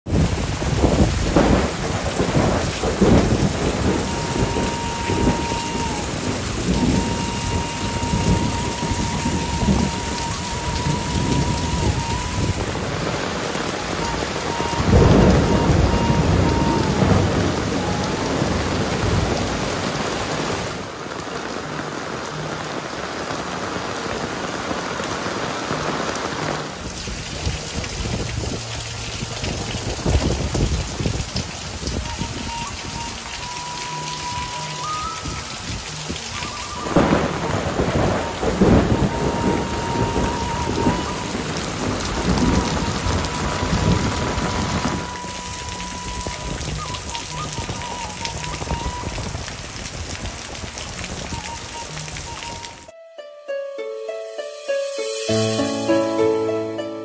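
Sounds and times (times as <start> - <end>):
heavy rain on roofs and foliage: 0.0 - 52.9, 54.9 - 56.7
low thunder rumbles: 0.1 - 20.9, 26.9 - 52.7
runoff streaming off roof: 0.1 - 52.9.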